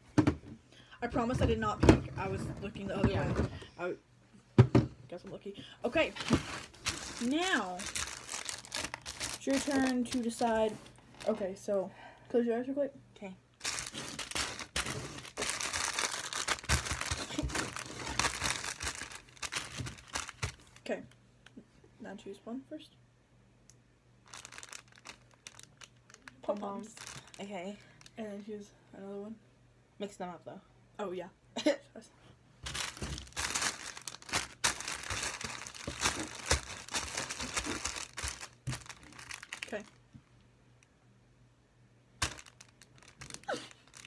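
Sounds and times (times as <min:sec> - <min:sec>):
plastic packets crinkling: 0:05.9 - 0:11.4, 0:13.6 - 0:20.9, 0:24.2 - 0:28.2, 0:32.6 - 0:40.0, 0:42.2 - 0:44.0
hands rustling items on table: 0:06.0 - 0:11.4, 0:13.6 - 0:20.8, 0:32.6 - 0:39.9.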